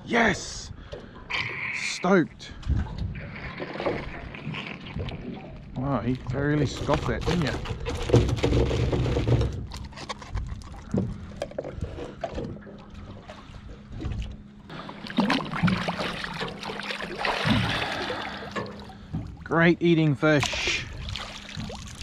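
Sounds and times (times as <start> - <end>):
faint steady hum: 4.2 - 22.0
rough splashing water: 13.1 - 19.4, 20.3 - 22.0.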